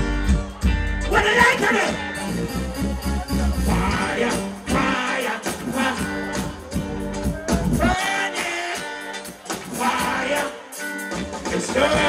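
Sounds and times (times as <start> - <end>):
reggae band playing live: 0.0 - 12.0
man singing: 3.2 - 12.0.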